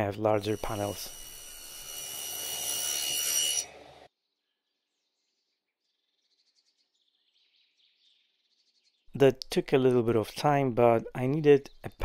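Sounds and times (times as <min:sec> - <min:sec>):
table saw cutting wood: 0:00.3 - 0:04.1.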